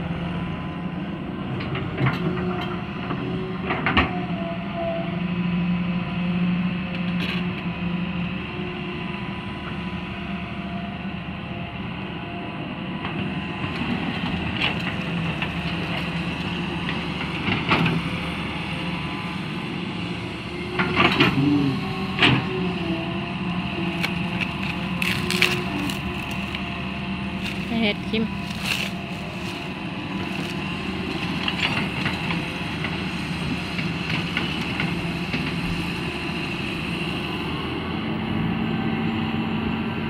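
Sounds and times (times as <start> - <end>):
excavator engine hum: 0.0 - 40.0
bucket scraping dirt and rock: 24.0 - 26.7, 27.4 - 30.6.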